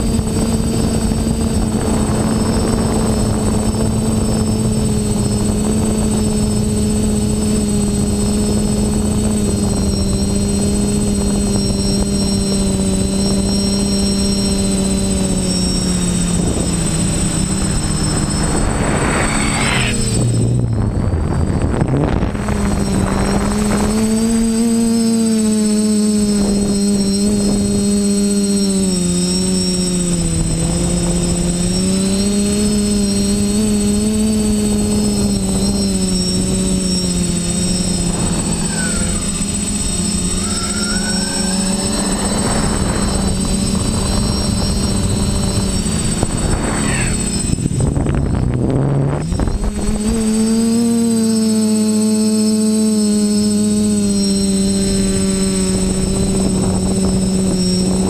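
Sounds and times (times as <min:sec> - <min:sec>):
drone motors buzzing: 0:00.0 - 0:58.0
thin high whine: 0:00.0 - 0:58.0
air rush: 0:15.8 - 0:21.7, 0:36.4 - 0:48.4.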